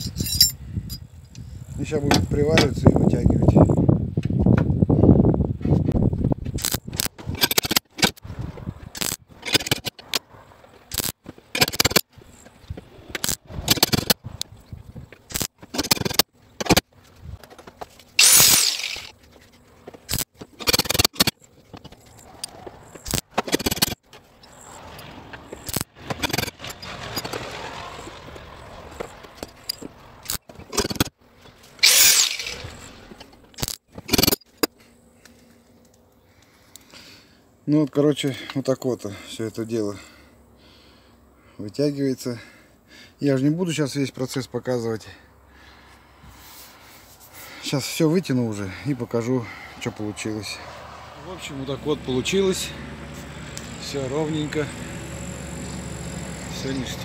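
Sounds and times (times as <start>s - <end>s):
hissing bursts: 18.2s - 19.1s, 31.8s - 32.9s.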